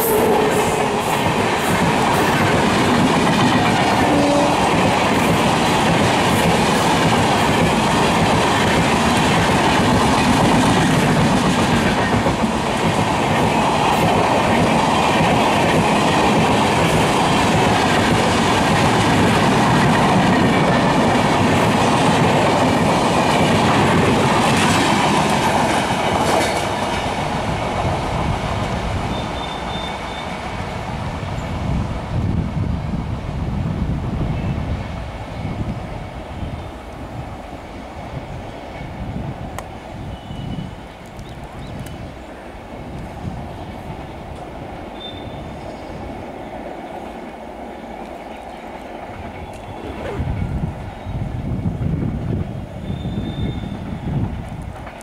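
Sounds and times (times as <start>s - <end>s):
train coaches rolling past: 0.0s - 55.0s
high squeal: 29.1s - 30.4s, 44.9s - 45.8s, 52.8s - 54.0s.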